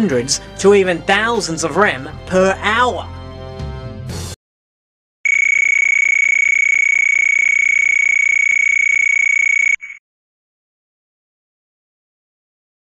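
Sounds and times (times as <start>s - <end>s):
high electronic tone: 5.3s - 10.0s.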